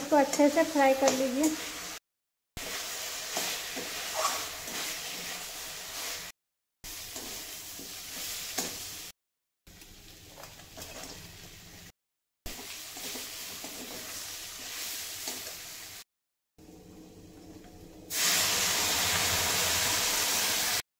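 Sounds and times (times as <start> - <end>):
food sizzling in oil: 0.0 - 2.0, 2.6 - 16.1, 18.1 - 20.8
metal spatula scraping a pan: 2.6 - 6.3.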